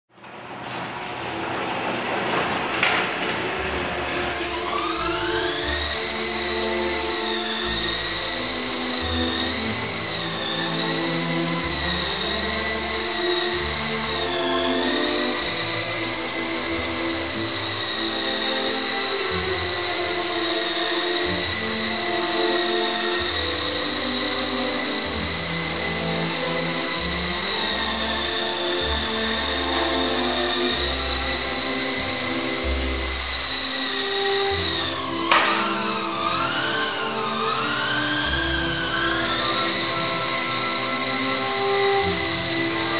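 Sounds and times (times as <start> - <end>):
rc helicopter motor whine: 2.7 - 42.9
background music: 3.4 - 42.9.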